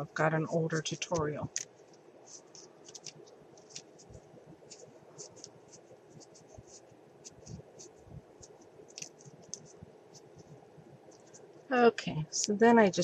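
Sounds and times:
paper rustling: 0.7 - 11.5.

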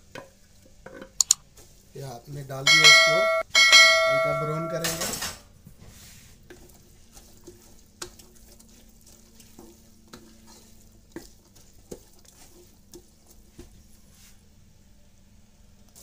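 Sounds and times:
faint sizzle: 0.0 - 16.0
wooden spoon scraping a pan: 4.4 - 14.5.

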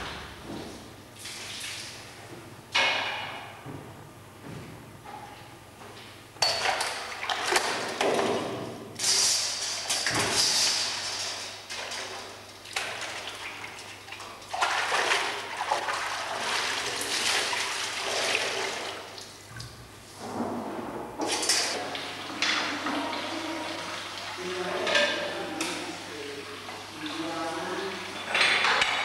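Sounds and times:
whey sloshing and splashing: 7.0 - 19.4, 21.4 - 28.4.

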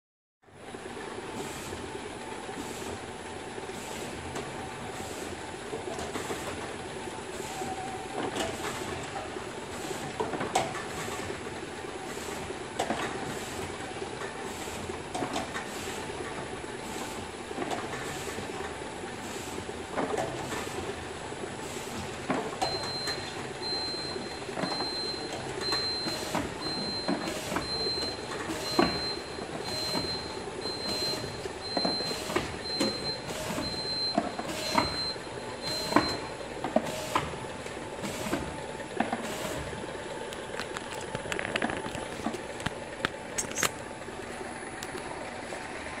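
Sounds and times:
containers clacking on conveyor: 12.0 - 21.0, 24.4 - 43.7
high electronic beep: 22.7 - 36.3.

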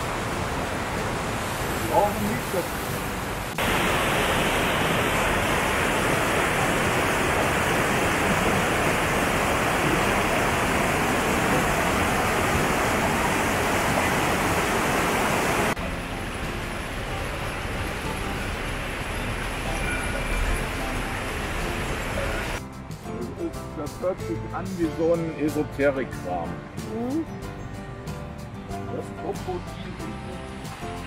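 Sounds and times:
running mountain water: 0.0 - 22.6.

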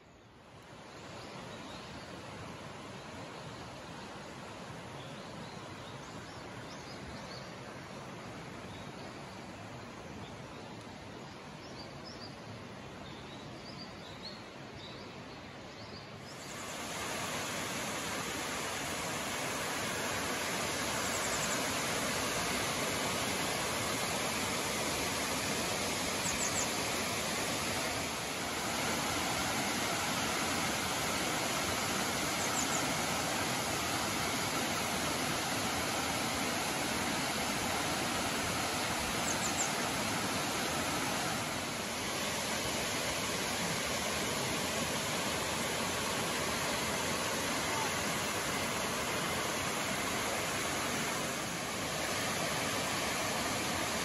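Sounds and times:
waterfall rushing into a pool: 16.4 - 54.0
birds chirping: 26.1 - 27.3, 32.3 - 33.0, 38.7 - 40.6.

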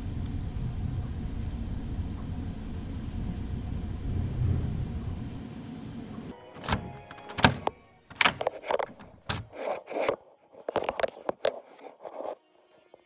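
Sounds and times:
bus cabin rumble: 0.0 - 9.6
phone being handled: 6.6 - 12.3.

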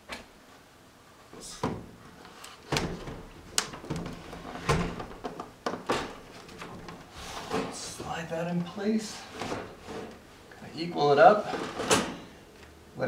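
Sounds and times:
sash sliding and scraping: 6.1 - 8.0, 9.0 - 10.4.

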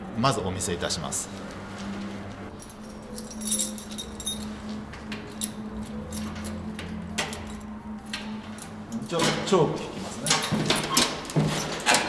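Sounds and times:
keys clinking and jingling: 2.5 - 9.4, 10.1 - 12.0.

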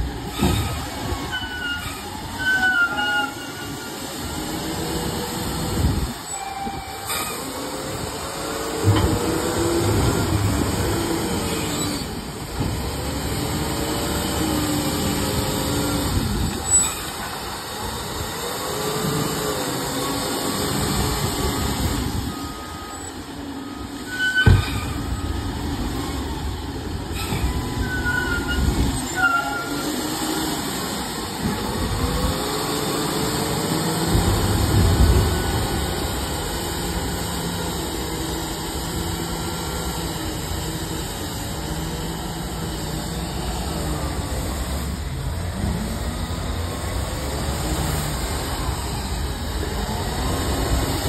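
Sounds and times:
brief high squeaks: 0.4 - 3.8, 6.3 - 7.6, 24.0 - 25.3, 27.1 - 29.9
diesel engine revving: 7.0 - 51.0.

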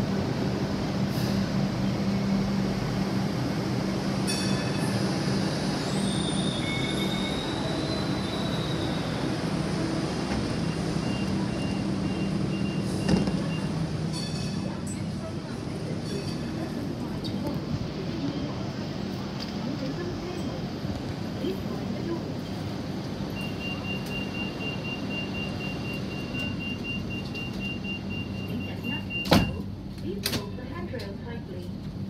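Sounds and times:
light rail train running: 0.0 - 32.0
train low hum: 0.0 - 32.0.

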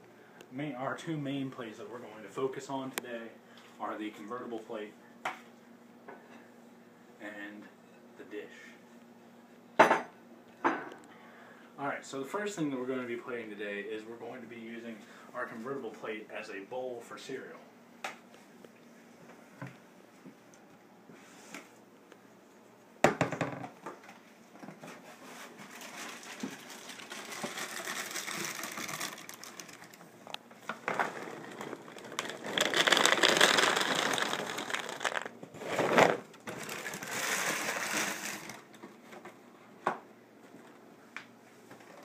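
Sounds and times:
cereal bag crinkling: 25.6 - 38.8
dry cereal poured onto plate: 26.0 - 30.0, 30.8 - 38.6.

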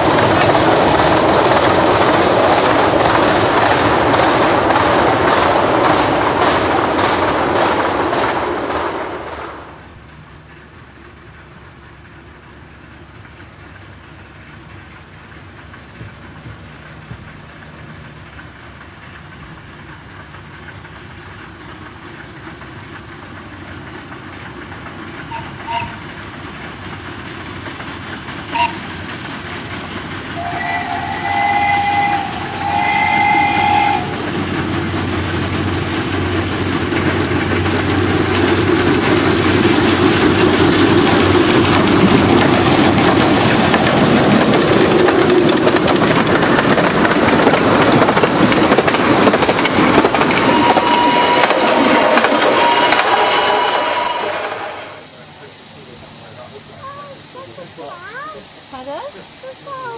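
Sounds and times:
train running past: 0.0 - 59.9
steam locomotive whistle: 25.3 - 26.0, 28.5 - 28.8, 30.4 - 34.2, 50.4 - 55.0.

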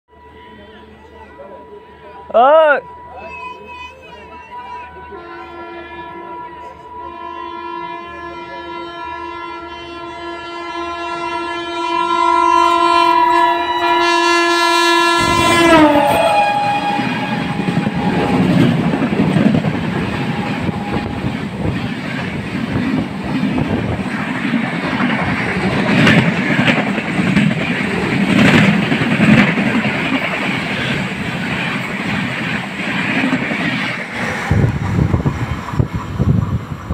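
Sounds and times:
locomotive horn: 0.1 - 21.8
train coaches rattling past: 0.1 - 36.9.

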